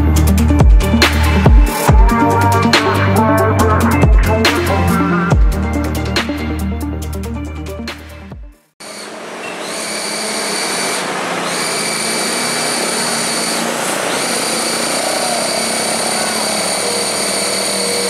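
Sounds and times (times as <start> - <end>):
high whine: 8.8 - 18.0
diesel trucks labouring uphill: 8.9 - 18.0.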